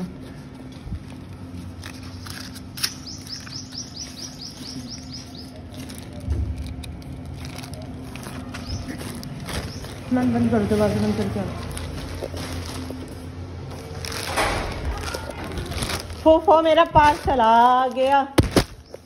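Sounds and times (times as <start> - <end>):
bird chirping: 2.0 - 5.8
low rumble: 5.7 - 17.3.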